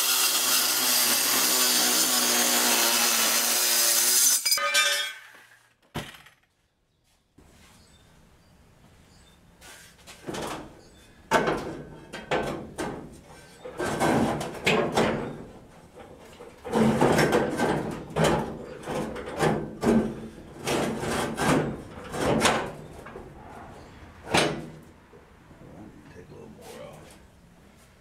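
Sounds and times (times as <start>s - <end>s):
metal scraping and knocking: 11.3s - 24.8s.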